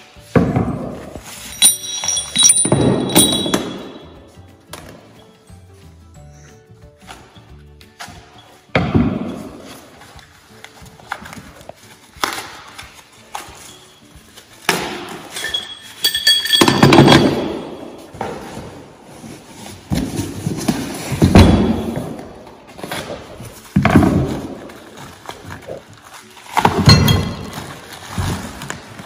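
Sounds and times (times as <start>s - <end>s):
steel parts clinking together: 1.4s - 4.2s, 15.3s - 17.9s
cardboard and paper rustling: 9.7s - 14.7s, 18.0s - 21.4s, 27.5s - 29.0s.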